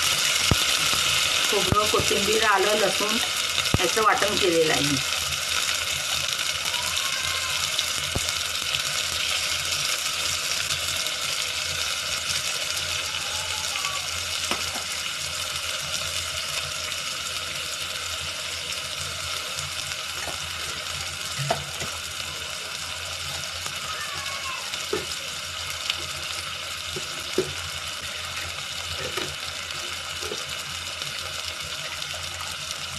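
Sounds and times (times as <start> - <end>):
paste sizzling in hot oil: 0.0 - 32.9.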